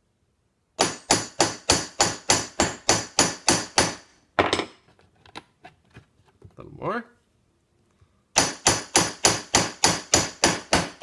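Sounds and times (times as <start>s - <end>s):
hammer striking rivet on anvil: 0.8s - 4.7s, 8.4s - 11.0s.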